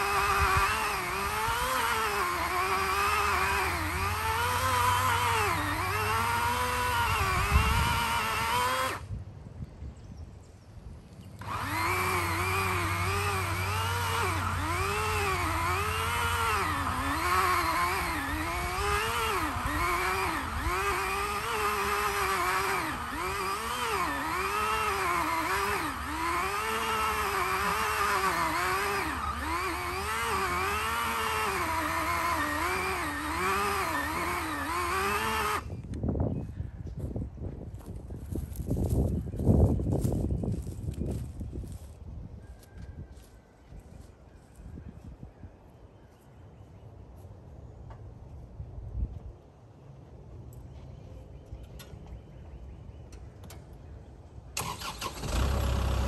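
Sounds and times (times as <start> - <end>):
chainsaw cutting log: 0.0 - 9.1, 11.4 - 35.8, 54.6 - 56.0.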